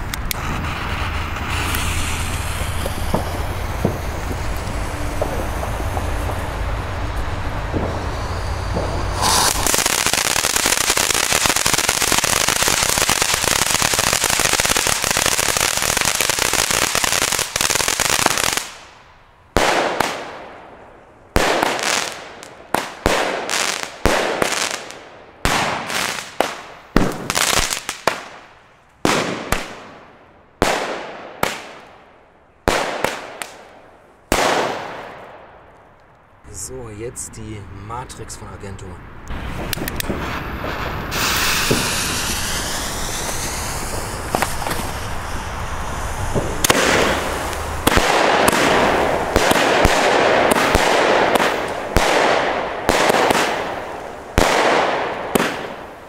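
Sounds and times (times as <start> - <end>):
firework crackling hiss: 0.0 - 35.5, 39.3 - 56.0
firework bangs: 0.0 - 35.9, 39.3 - 56.0.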